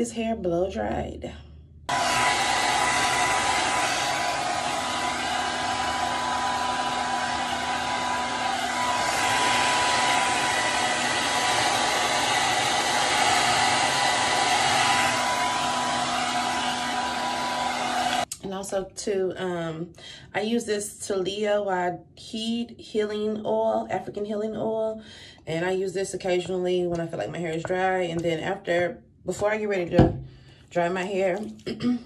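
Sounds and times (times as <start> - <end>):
hair dryer running: 1.9 - 18.3.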